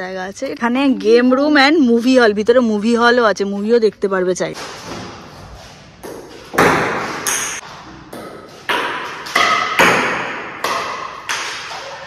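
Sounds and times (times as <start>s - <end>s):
table tennis ball hits: 6.0s - 12.0s.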